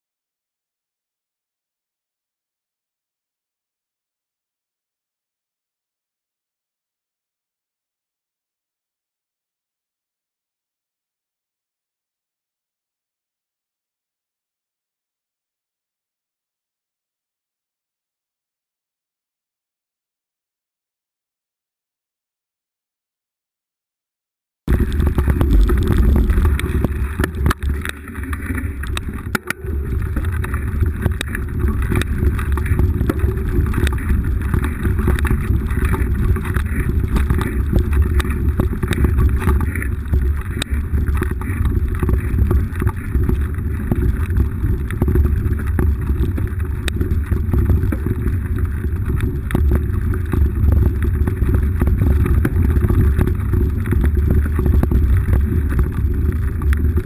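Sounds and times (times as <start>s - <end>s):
bike rattling over rough ground: 24.7s - 57.0s
low rumble: 24.7s - 57.0s
wind buffeting microphone: 24.7s - 57.0s.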